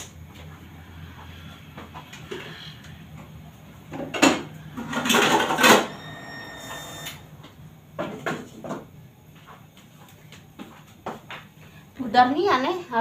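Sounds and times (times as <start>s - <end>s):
metallic ring: 5.8s - 7.3s.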